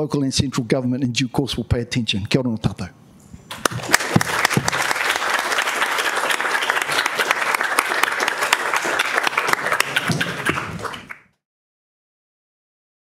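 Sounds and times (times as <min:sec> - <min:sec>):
audience applauding: 0:03.5 - 0:11.4.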